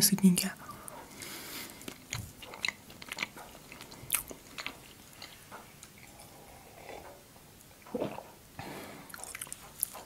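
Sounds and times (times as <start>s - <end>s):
close chewing: 0.7s - 7.2s, 9.0s - 10.0s
wet mouth clicks: 9.1s - 10.0s.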